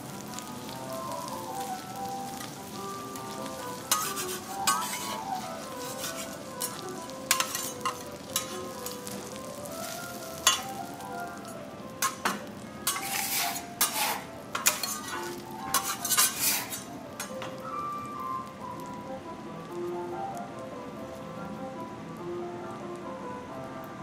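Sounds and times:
food sizzling on a griddle: 0:00.0 - 0:24.0
metal spatulas scraping a plate: 0:03.8 - 0:08.6, 0:12.0 - 0:17.3.

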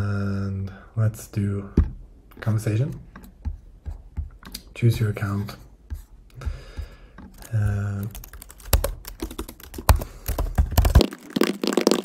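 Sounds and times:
typing on computer keyboard: 0:07.2 - 0:11.5.

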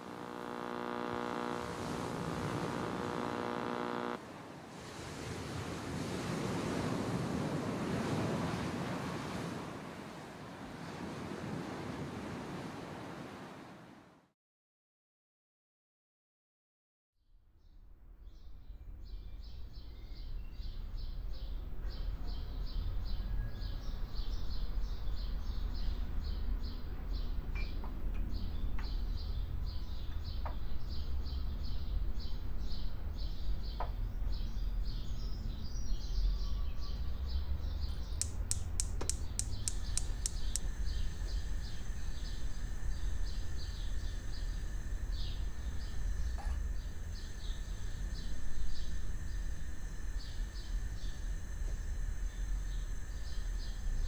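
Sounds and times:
thin steady high tone: 0:00.0 - 0:04.2
faint clicks: 0:38.2 - 0:40.7
rapid high chirping: 0:38.2 - 0:40.7
sharp ticks: 0:38.2 - 0:40.7.

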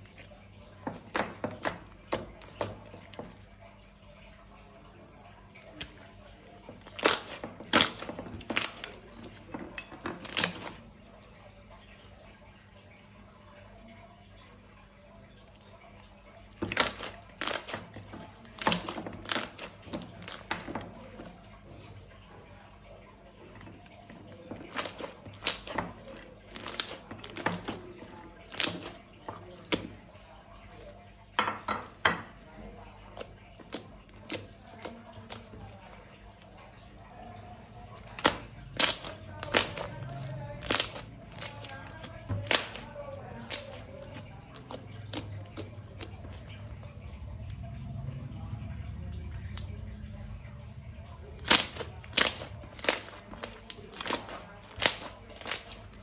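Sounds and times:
slime clicking and popping: 0:06.8 - 0:08.9, 0:24.7 - 0:25.8, 0:38.2 - 0:40.0, 0:40.6 - 0:41.7, 0:51.4 - 0:55.9
slime popping and squelching: 0:06.8 - 0:09.4, 0:16.6 - 0:21.3, 0:24.5 - 0:29.0, 0:38.1 - 0:46.6, 0:51.4 - 0:56.0.

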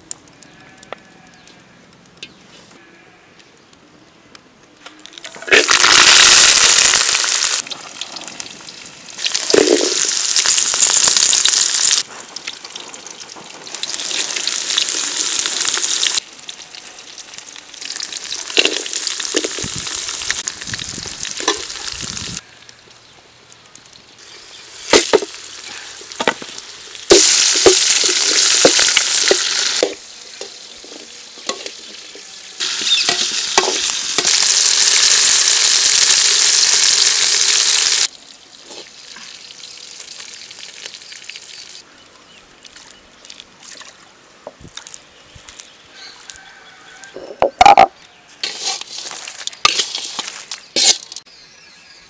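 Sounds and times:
vegetables sizzling in hot oil: 0:05.4 - 0:16.3, 0:16.9 - 0:22.4, 0:24.0 - 0:41.8.

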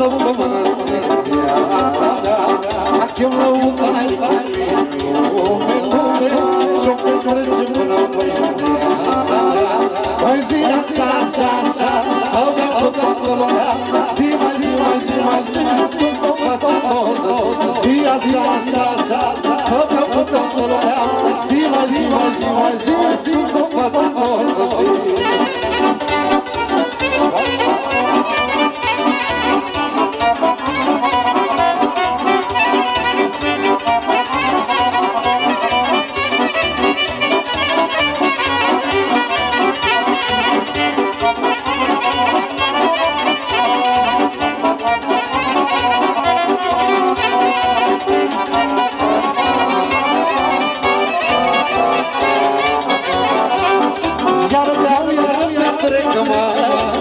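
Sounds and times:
electronic keyboard accompaniment: 0:00.0 - 0:57.0
steady beat: 0:00.0 - 0:57.0
amplified violin melody: 0:24.2 - 0:56.8.

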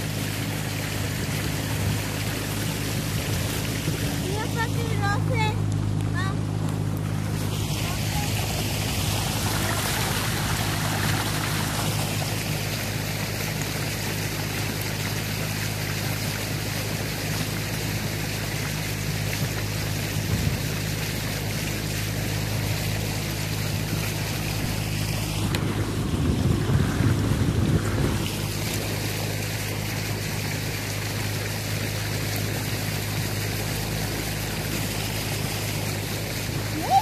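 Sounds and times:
outboard motor running: 0:00.0 - 0:37.0
water rushing along hull: 0:00.0 - 0:37.0
wind buffeting microphone: 0:19.4 - 0:20.9, 0:24.5 - 0:29.2.

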